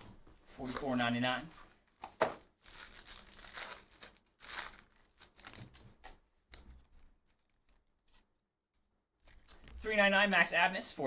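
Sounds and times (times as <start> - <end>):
foil wrapper tearing and crinkling: 2.6 - 5.6.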